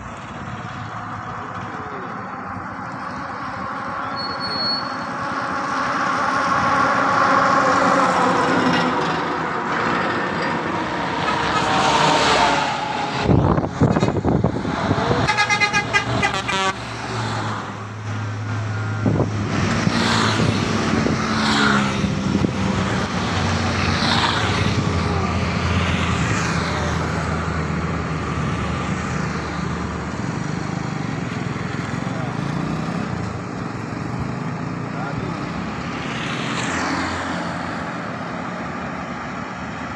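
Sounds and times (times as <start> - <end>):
heavy traffic passing: 0.0 - 39.9
vehicle horns: 11.2 - 12.9, 14.8 - 17.1.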